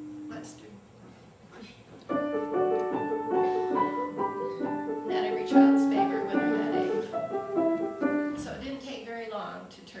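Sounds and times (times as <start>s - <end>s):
piano melody over chords: 2.1s - 8.5s.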